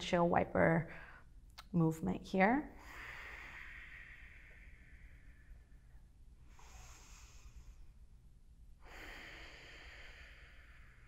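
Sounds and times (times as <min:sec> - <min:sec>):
person breathing faintly: 0:02.7 - 0:08.1, 0:08.8 - 0:11.0.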